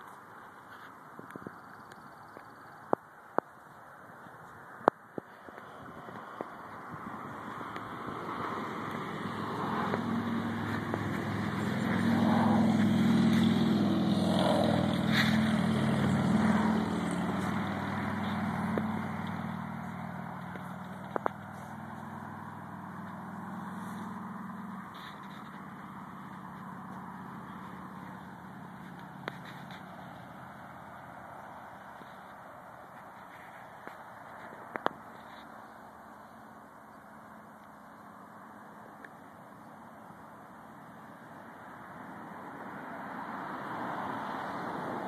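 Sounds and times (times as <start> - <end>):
engine running steadily: 5.6 - 34.0.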